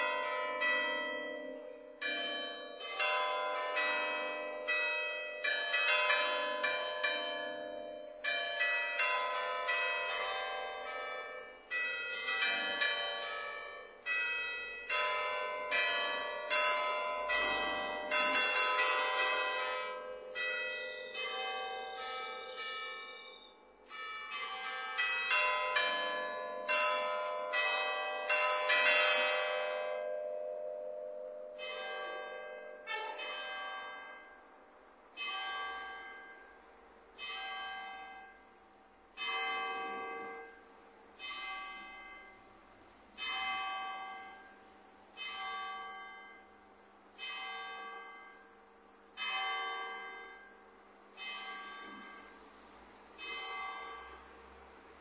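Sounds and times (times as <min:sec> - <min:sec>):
church bell melody: 0:00.0 - 0:55.0
church bell striking hour: 0:00.0 - 0:55.0.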